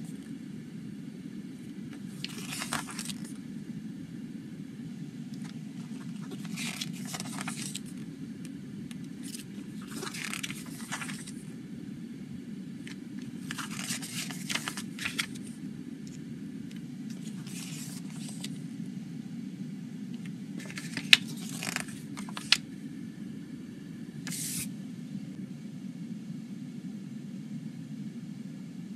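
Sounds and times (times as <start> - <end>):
steady low hum: 0.0 - 28.9
paper pages rustling: 1.9 - 3.4, 5.4 - 8.0, 8.9 - 11.5, 12.9 - 15.5, 17.1 - 18.6, 20.6 - 22.6, 24.3 - 24.7.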